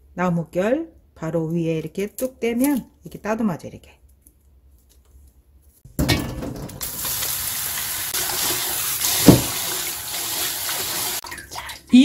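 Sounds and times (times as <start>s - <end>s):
tap water pouring into colander: 6.8s - 11.8s.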